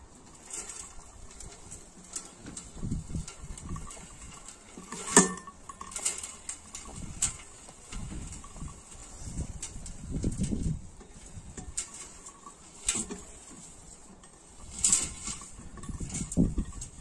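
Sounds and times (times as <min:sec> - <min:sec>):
metal drum rattling and clicking: 0:00.1 - 0:17.0.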